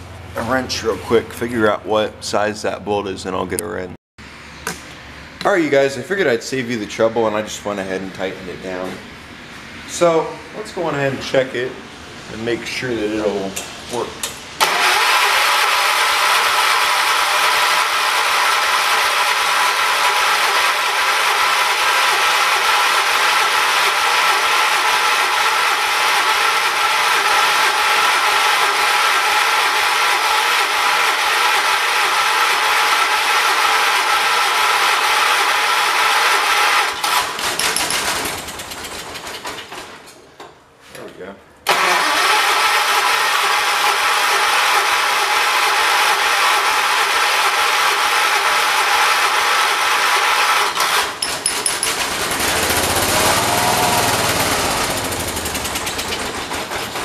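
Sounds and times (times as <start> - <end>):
lawn tractor engine running: 14.6 - 39.2, 41.7 - 57.0.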